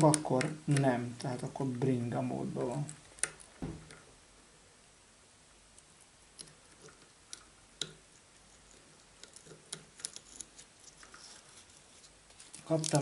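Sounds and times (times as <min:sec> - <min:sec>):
small metal clicks: 0:02.8 - 0:04.1, 0:08.7 - 0:11.2.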